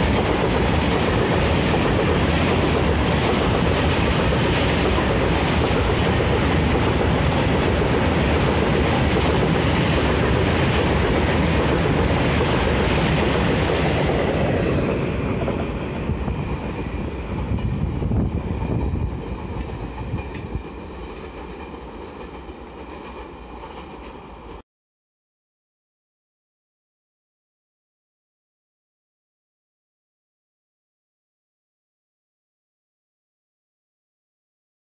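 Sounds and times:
train wheels on rails: 0.0 - 24.6.

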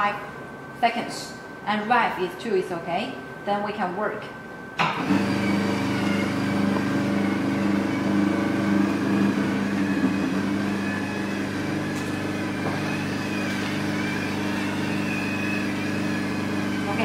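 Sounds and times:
vacuum pump humming: 4.8 - 17.0.

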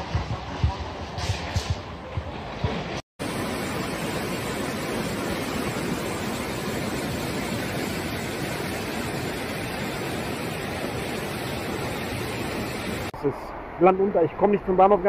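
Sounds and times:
floodwater rushing: 3.2 - 15.0.

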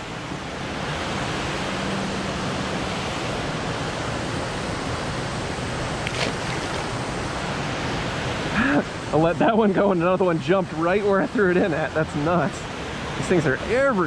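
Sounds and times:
river water pouring over dam: 0.0 - 14.0.

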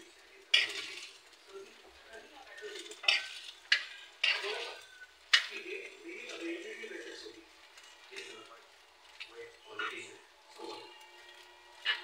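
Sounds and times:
oil sizzling faintly: 0.0 - 12.0
metal spoon scraping frying pan: 0.5 - 1.3, 2.6 - 5.6.

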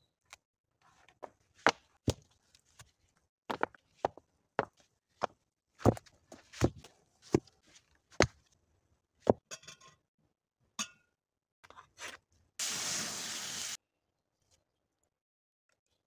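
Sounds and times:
steady hiss: 12.6 - 13.8.

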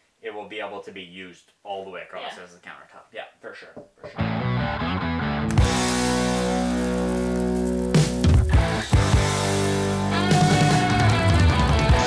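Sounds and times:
rock music with guitar chords: 4.1 - 12.0.

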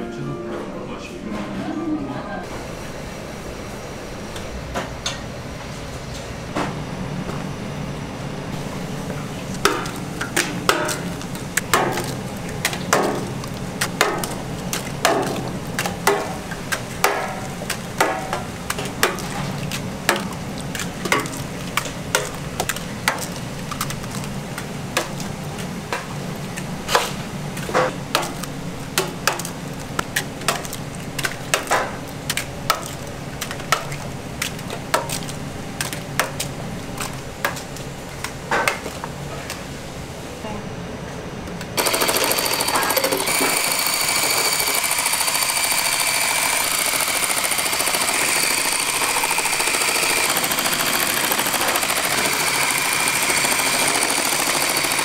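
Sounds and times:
low kitchen hum: 0.0 - 53.5
eggs cracked against metal pans: 9.6 - 25.3.

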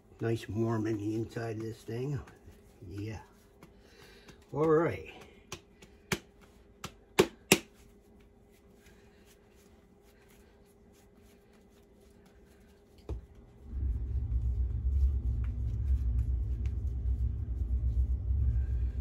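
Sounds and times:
soft kneading: 0.0 - 19.0
hand slapping dough on board: 0.3 - 8.5
steady low rumble: 8.8 - 19.0.

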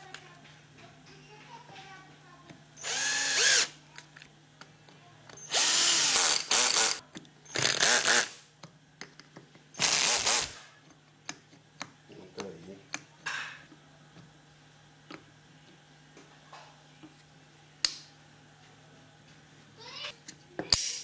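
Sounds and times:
electric screwdriver driving screws: 2.8 - 3.7, 5.5 - 7.0.

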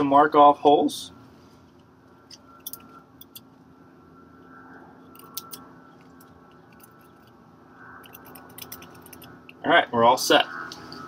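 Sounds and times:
low steady hum: 0.0 - 11.0
pencil clicks and scratches: 5.2 - 7.4, 8.0 - 9.6.

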